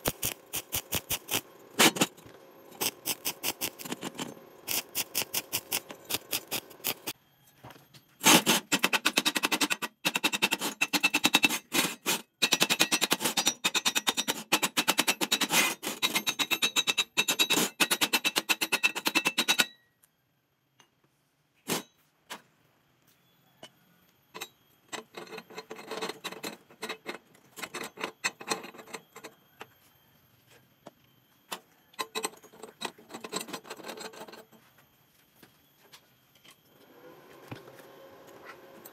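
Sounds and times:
welding arc crackling: 0.0 - 2.1, 2.8 - 7.1.

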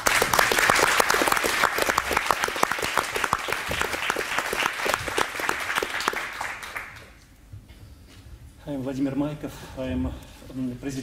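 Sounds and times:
applause: 0.0 - 7.2.

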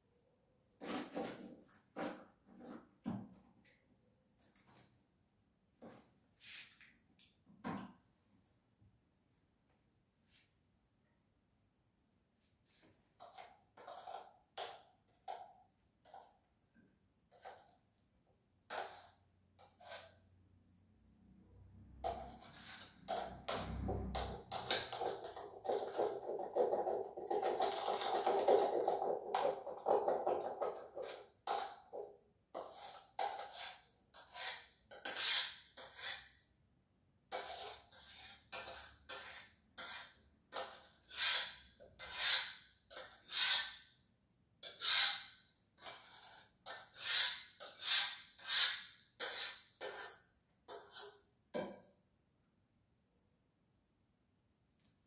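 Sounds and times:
utensil scraping steel pot: 13.2 - 15.4, 18.6 - 20.3, 22.0 - 32.0, 32.6 - 36.4, 37.3 - 43.9, 44.6 - 51.7.

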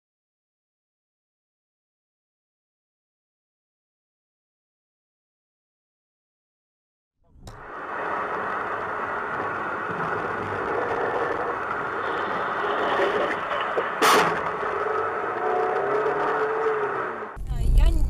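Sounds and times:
car driving on snowy road: 7.6 - 17.4.

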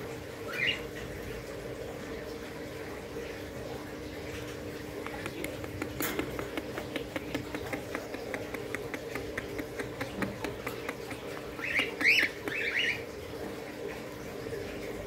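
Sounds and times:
budgies ticking: 4.8 - 13.2.

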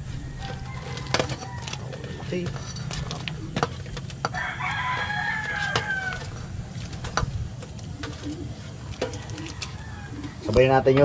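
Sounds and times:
rooster crowing: 0.0 - 2.4, 4.2 - 6.8, 9.0 - 10.6.

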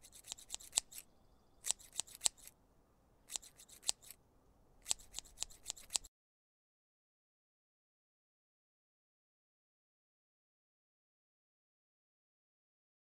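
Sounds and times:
scissors snipping: 0.0 - 2.6, 3.3 - 4.2, 4.8 - 6.1.

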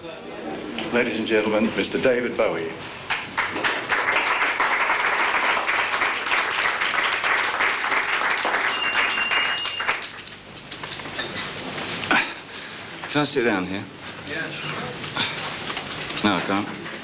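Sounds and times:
audience applauding: 3.1 - 10.4.

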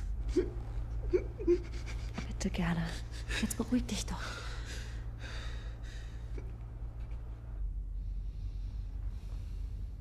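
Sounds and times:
steady low hum: 0.0 - 10.0
person breathing quietly: 4.2 - 6.5, 7.8 - 10.0.

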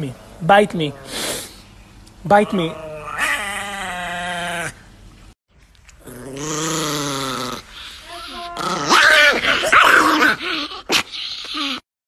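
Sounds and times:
small dog growling: 2.4 - 4.8, 6.0 - 11.8.

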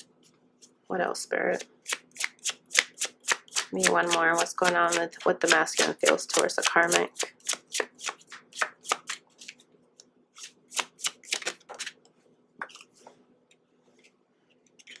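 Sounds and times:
cards being shuffled: 5.8 - 9.6, 10.4 - 12.0.

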